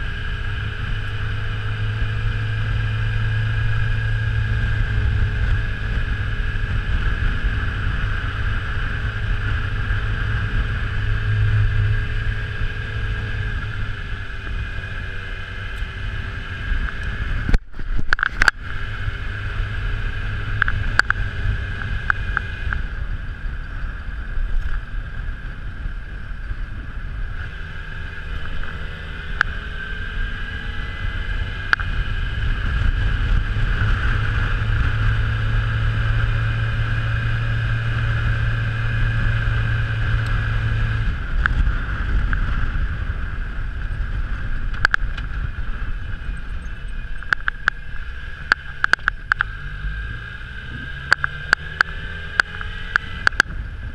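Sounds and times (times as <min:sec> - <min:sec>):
motorcycle engine running: 0:00.0 - 0:53.9
wind and road noise: 0:00.0 - 0:53.9
sharp clicks: 0:47.2 - 0:47.8, 0:48.4 - 0:49.6, 0:51.1 - 0:53.5.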